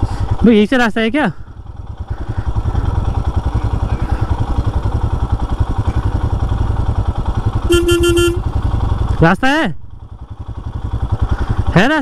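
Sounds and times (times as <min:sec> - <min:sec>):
motorcycle engine running: 0:00.0 - 0:12.0
horn beep: 0:07.6 - 0:08.5.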